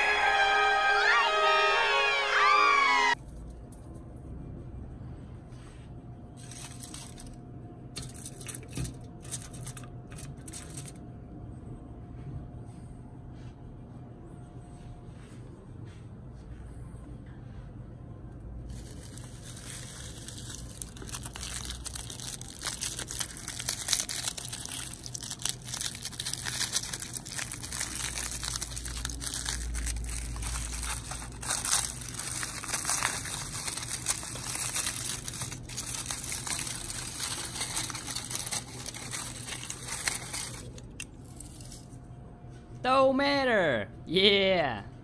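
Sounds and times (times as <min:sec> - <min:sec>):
aluminium foil crinkling: 0:06.3 - 0:11.0, 0:18.6 - 0:42.0.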